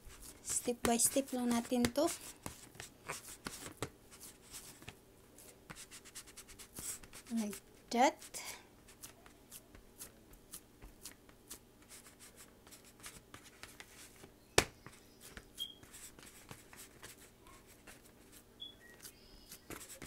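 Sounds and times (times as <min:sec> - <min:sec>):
hands patting ground meat: 0:08.9 - 0:11.6.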